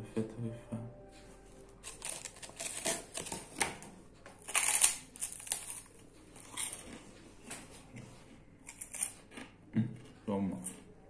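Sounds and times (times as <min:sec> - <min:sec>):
rice cake crunching: 0:01.8 - 0:03.4, 0:04.4 - 0:07.2.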